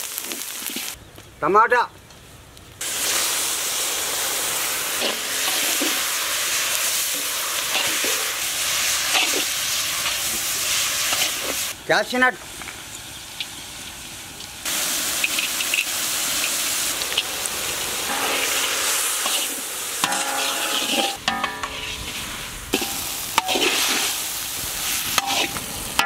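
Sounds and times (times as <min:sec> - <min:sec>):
food sizzling in a pan: 0:00.0 - 0:01.0, 0:02.8 - 0:11.8, 0:12.4 - 0:26.0
spatula scraping a pan: 0:18.1 - 0:24.2, 0:25.2 - 0:25.6.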